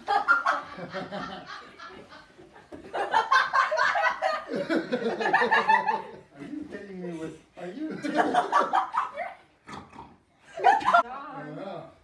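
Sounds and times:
people laughing: 0:00.0 - 0:06.7, 0:07.6 - 0:09.4, 0:10.5 - 0:11.1.

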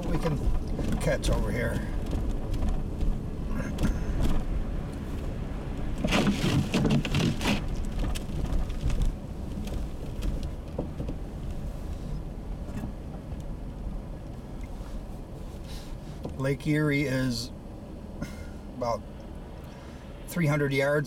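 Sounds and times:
wind buffeting microphone: 0:00.0 - 0:15.1.

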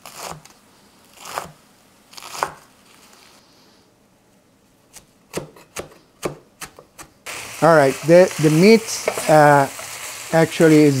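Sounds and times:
knife chopping herbs on wooden board: 0:05.3 - 0:07.1.

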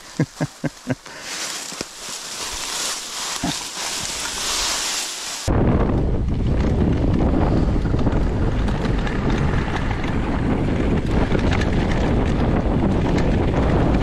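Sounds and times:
leaves rustling under bike tyres: 0:00.0 - 0:13.9
wind buffeting microphone: 0:05.4 - 0:14.0.

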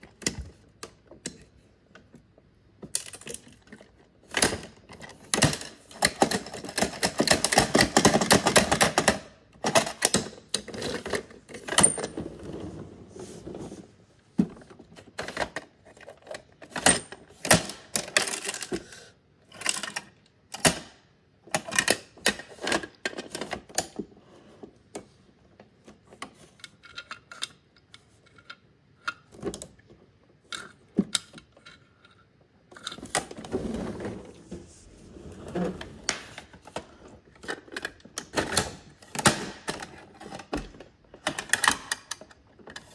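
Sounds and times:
plastic toy clicking and clattering: 0:02.8 - 0:12.0, 0:15.0 - 0:24.0, 0:26.1 - 0:33.4, 0:37.4 - 0:42.9.

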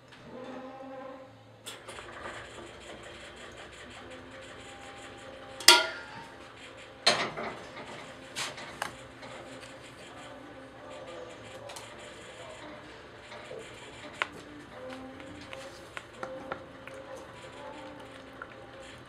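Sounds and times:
glass and containers clinking: 0:05.6 - 0:06.4.

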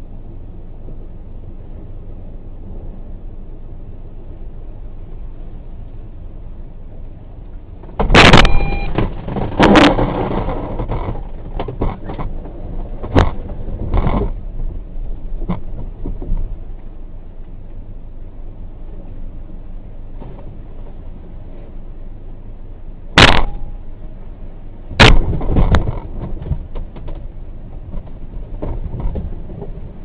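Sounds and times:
low rumble of water: 0:00.0 - 0:30.0.

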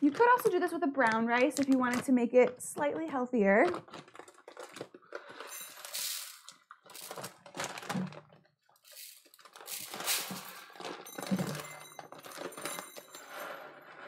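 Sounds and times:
rice grains pouring and rattling: 0:05.4 - 0:07.4, 0:08.8 - 0:11.8.

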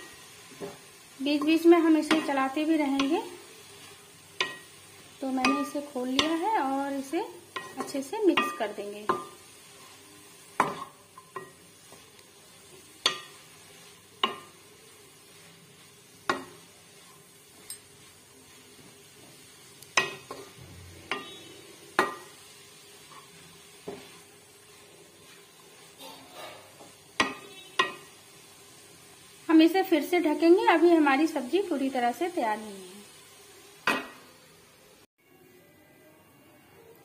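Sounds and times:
faint sizzle of greens: 0:00.0 - 0:37.0
wooden spatula knocking pan: 0:01.4 - 0:03.3, 0:05.3 - 0:06.6, 0:07.5 - 0:09.4, 0:10.6 - 0:12.0, 0:14.2 - 0:14.6, 0:16.2 - 0:16.7, 0:20.0 - 0:21.4, 0:22.0 - 0:22.4, 0:26.8 - 0:28.1.

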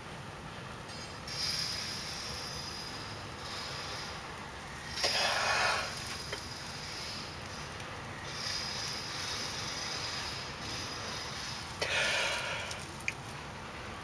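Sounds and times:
hard breath blown into tinder: 0:04.9 - 0:07.3, 0:08.2 - 0:13.0.

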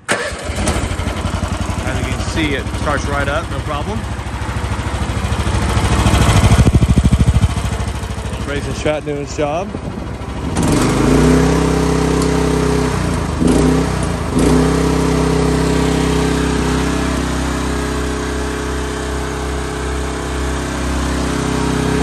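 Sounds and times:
excavator engine running: 0:00.0 - 0:22.0.

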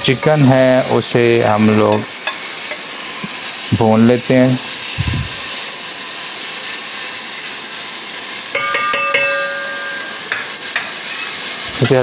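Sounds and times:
chicken sizzling in a pot: 0:00.0 - 0:12.0
metal spoon clinking against pot: 0:08.5 - 0:10.9.

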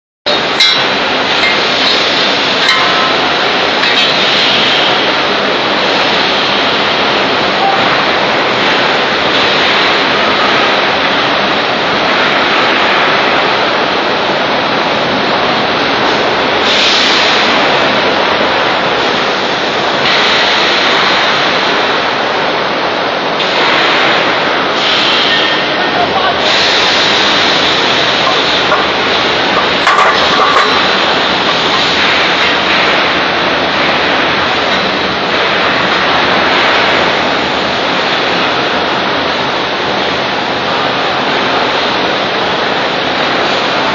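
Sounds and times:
foundry machinery din: 0:00.3 - 0:13.4, 0:23.4 - 0:38.6.

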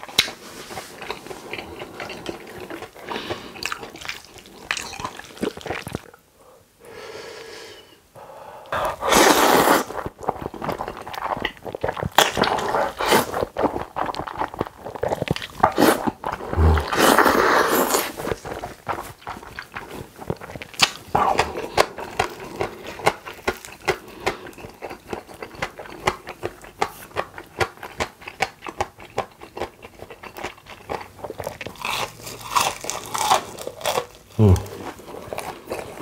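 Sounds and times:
wet chewing with mouth clicks: 0:00.0 - 0:06.2, 0:08.7 - 0:36.0
noodles being slurped: 0:08.8 - 0:25.7.

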